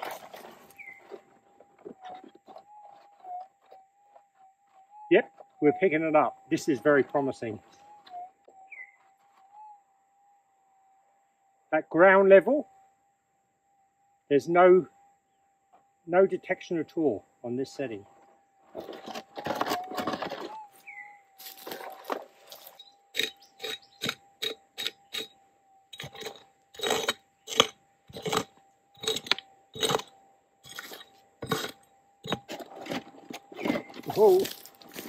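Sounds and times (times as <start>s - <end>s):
metal detector hum: 0.0s - 9.8s, 14.3s - 35.0s
pick striking gravelly soil: 26.0s - 35.0s.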